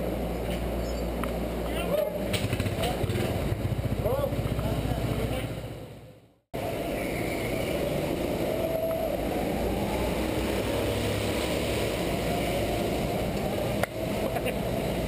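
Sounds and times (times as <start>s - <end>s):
go-kart engines idling: 1.7s - 6.2s.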